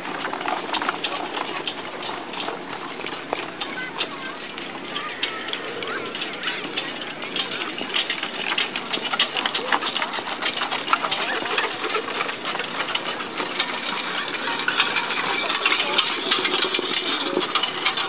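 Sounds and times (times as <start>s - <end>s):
horse-drawn wagon rattling: 0.0s - 18.0s.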